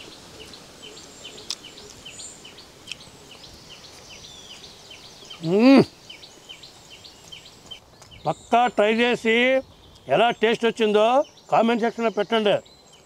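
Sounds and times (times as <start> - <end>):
bird chirping: 0.0 - 13.0
man humming with relish: 5.4 - 6.0.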